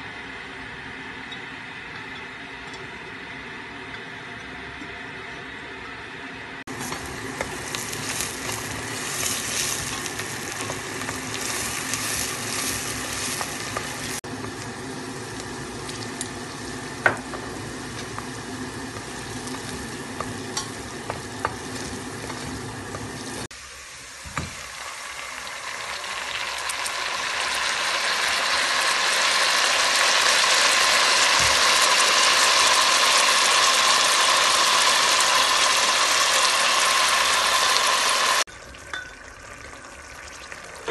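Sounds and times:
onions sizzling in oil: 6.7s - 40.9s
wooden spoon knocking on pot: 17.0s - 18.2s, 20.1s - 23.1s.

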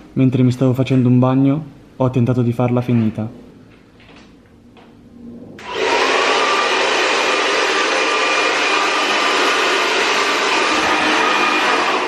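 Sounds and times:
hair dryer blowing air: 5.6s - 12.0s
hair dryer motor whine: 5.6s - 12.0s.

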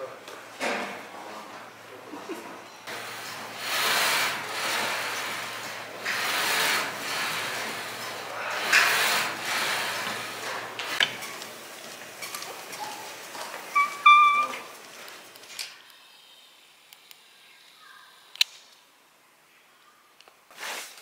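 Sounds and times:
leg press machine rasping slide: 2.9s - 14.8s.

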